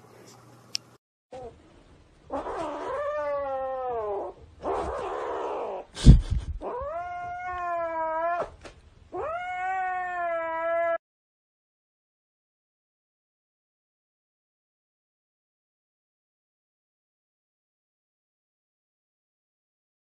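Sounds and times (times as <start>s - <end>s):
kitten yowling: 2.3s - 5.9s, 6.6s - 11.0s.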